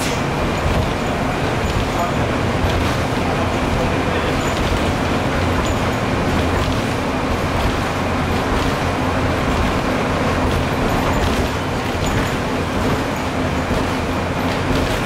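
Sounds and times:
bus engine and road rumble: 0.0 - 15.0.

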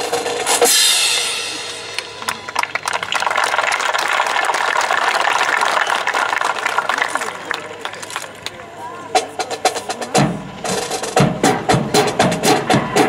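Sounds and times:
cymbal crash: 0.5 - 2.1
crowd applauding: 1.9 - 8.7.

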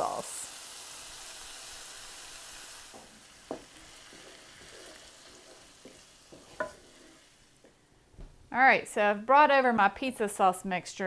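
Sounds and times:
sauce sizzling in skillet: 0.0 - 7.8
soft stirring: 3.0 - 7.8.

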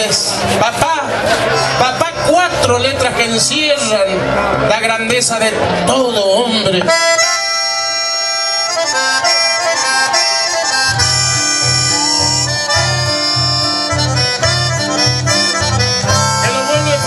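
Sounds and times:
accordion playing held chords: 0.0 - 17.0
steady bass pulse: 10.5 - 17.0.

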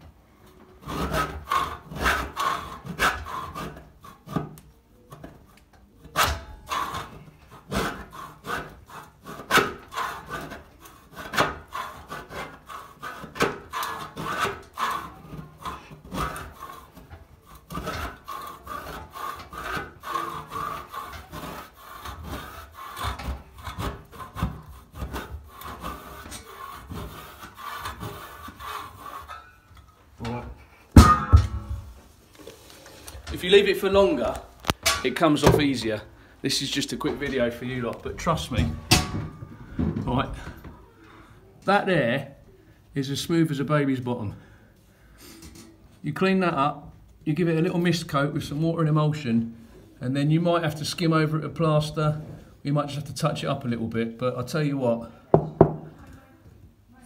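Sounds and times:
metal scraper rasping on ceiling: 0.5 - 30.0.

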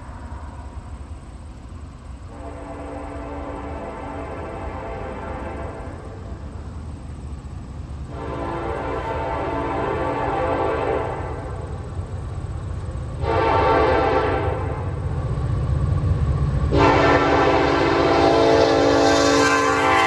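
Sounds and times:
low rumble of train: 0.0 - 20.0
locomotive air horn blasts: 2.3 - 6.2, 8.1 - 11.8, 13.2 - 14.9, 16.7 - 20.0.

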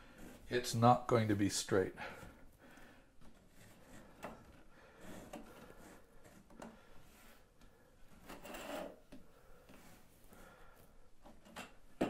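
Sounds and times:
ruler scraping rub: 8.2 - 9.0.

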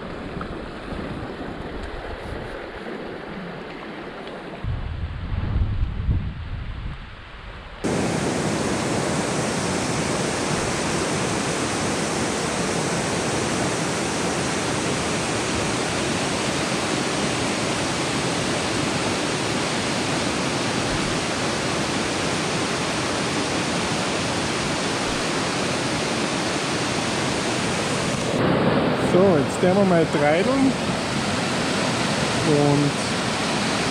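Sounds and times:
whitewater rushing: 7.8 - 33.9.

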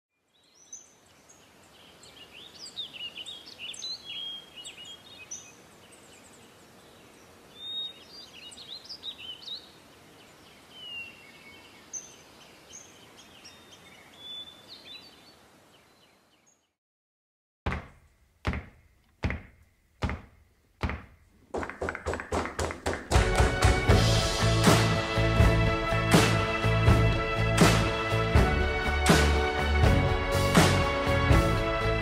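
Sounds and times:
steady outdoor hiss: 0.2 - 16.7, 19.6 - 32.0
birds chirping and whistling: 2.3 - 6.4, 7.5 - 9.7, 10.8 - 15.3.

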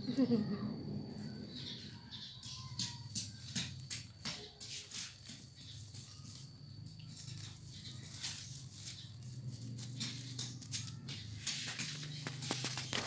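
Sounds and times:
plastic sack crinkling: 7.0 - 13.0.

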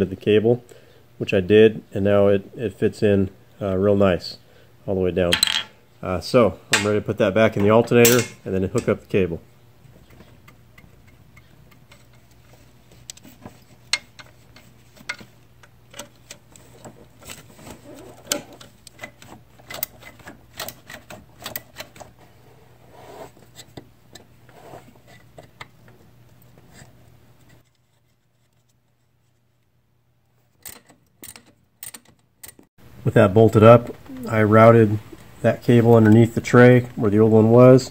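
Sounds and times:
metal tool clatter: 5.3 - 5.7, 8.0 - 8.4.

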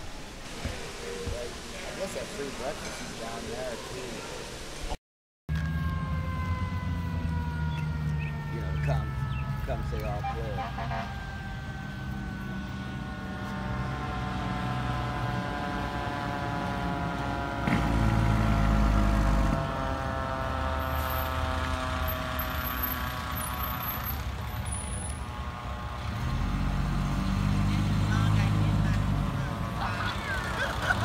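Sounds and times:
fire truck siren wailing: 5.5 - 31.0
truck engine running: 12.1 - 31.0.

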